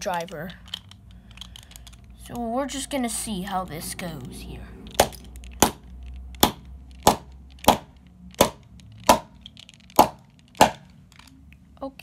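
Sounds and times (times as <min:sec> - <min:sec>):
screwdriver knocking plastic bricks: 0:04.9 - 0:11.0.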